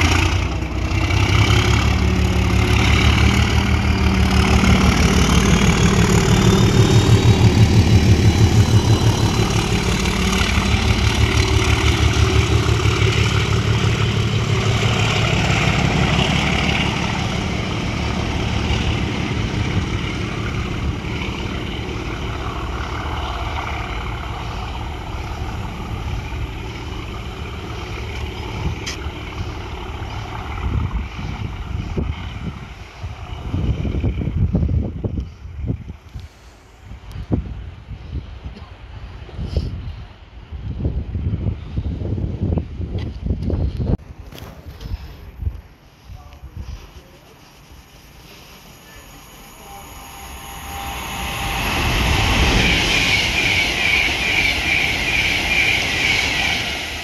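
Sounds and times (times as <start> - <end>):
diesel locomotive passing: 0.0 - 43.3, 45.2 - 57.0.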